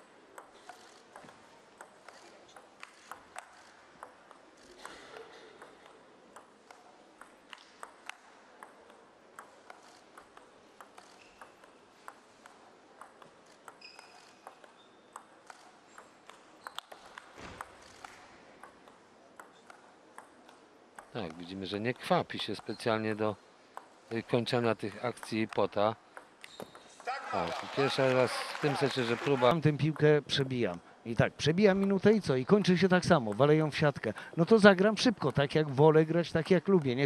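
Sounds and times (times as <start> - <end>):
table tennis ball ticking: 0.3 - 4.6, 5.6 - 26.9, 36.4 - 37.0.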